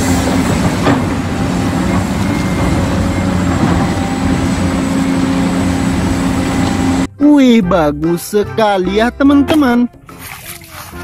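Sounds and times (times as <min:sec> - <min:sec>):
excavator diesel engine running: 0:00.0 - 0:07.1.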